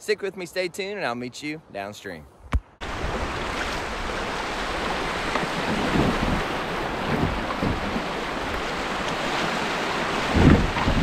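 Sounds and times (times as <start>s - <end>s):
creek water rushing: 2.8s - 11.0s
wind buffeting microphone: 2.9s - 11.0s.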